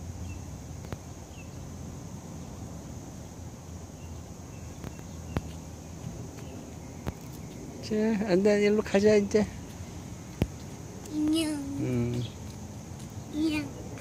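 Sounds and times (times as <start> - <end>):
insects droning: 0.0 - 14.0
bird chirps: 3.8 - 8.0.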